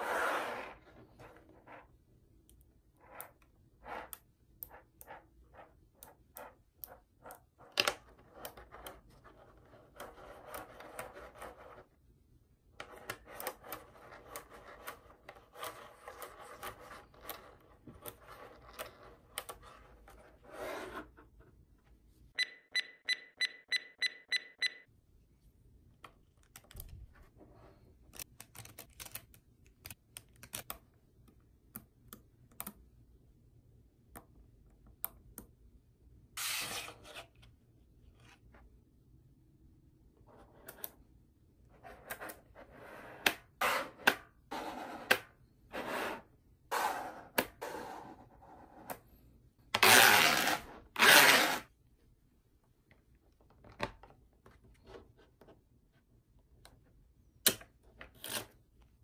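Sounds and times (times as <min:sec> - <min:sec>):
high beeps: 0:22.4 - 0:24.9.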